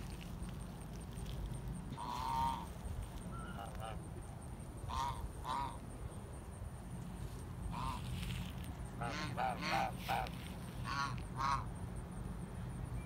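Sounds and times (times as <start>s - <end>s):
geese honking: 1.9s - 4.1s, 4.8s - 5.8s, 7.6s - 11.7s.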